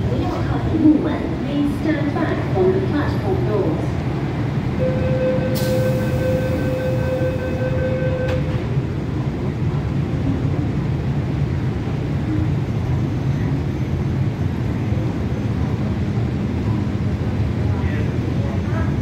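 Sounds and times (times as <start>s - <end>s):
low rumble of train and station: 0.0s - 19.0s
door-closing warning tone: 4.8s - 8.7s.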